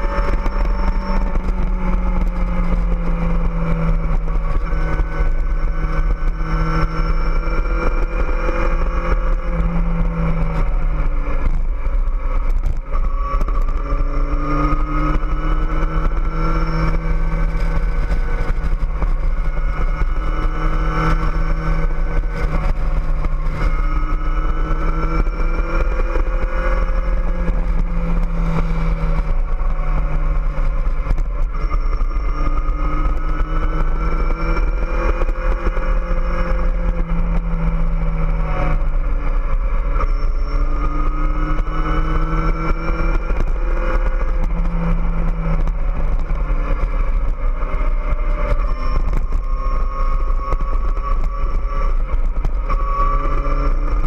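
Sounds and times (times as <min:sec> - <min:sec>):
motorcycle engine running: 0:00.0 - 0:54.0
wind rumble on microphone: 0:00.0 - 0:54.0.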